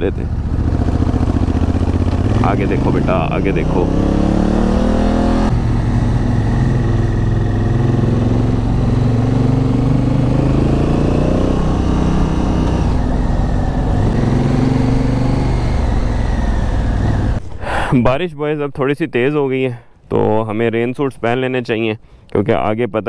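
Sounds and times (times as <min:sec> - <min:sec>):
motorcycle engine climbing: 0:00.0 - 0:17.7.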